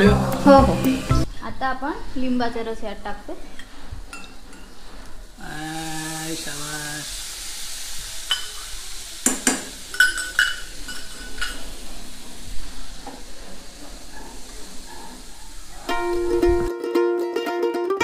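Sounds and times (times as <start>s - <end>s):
corn sizzling in a pan: 2.2s - 16.7s
metal spoon clinking on pan: 3.6s - 4.8s, 8.3s - 8.6s, 9.2s - 11.6s.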